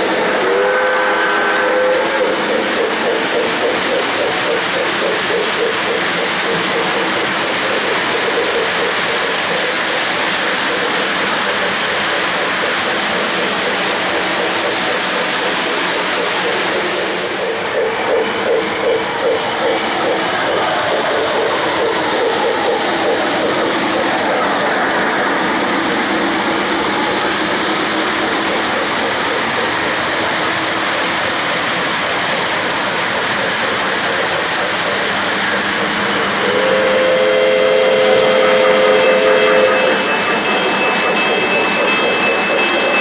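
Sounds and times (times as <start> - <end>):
model train wheels clattering: 0.0 - 43.0
steam whistle chord: 0.4 - 2.2, 36.4 - 41.2.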